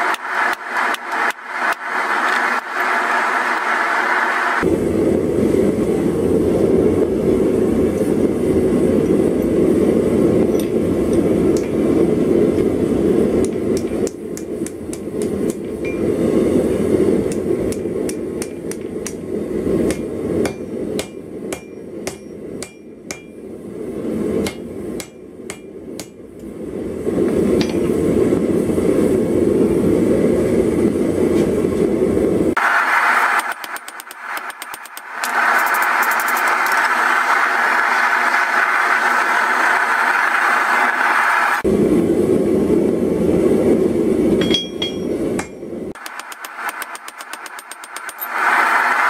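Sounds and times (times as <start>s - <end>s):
steady rushing noise: 0.0s - 49.0s
hammer striking steel on anvil: 13.4s - 16.1s, 17.2s - 23.5s, 24.4s - 26.3s, 27.6s - 28.0s, 44.3s - 48.3s.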